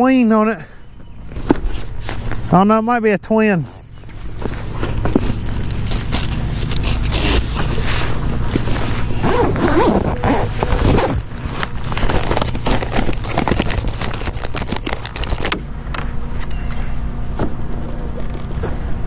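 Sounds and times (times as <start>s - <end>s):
plastic bags crinkling: 5.2s - 15.6s.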